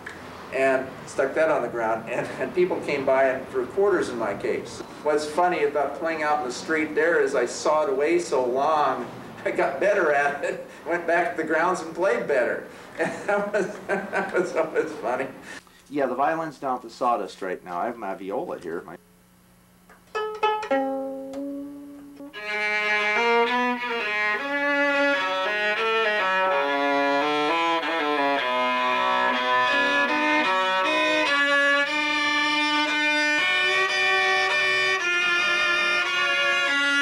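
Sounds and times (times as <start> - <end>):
viola plucked notes: 19.9 - 37.0
bowed viola melody: 20.2 - 37.0.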